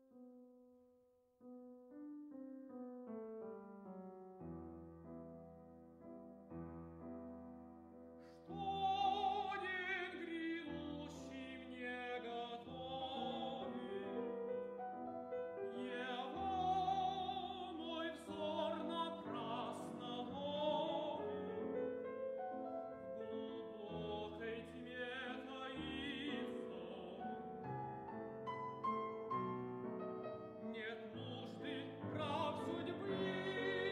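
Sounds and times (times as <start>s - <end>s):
piano accompaniment: 1.4s - 33.9s
tenor singing opera: 8.2s - 22.0s, 22.6s - 28.4s, 30.4s - 33.9s.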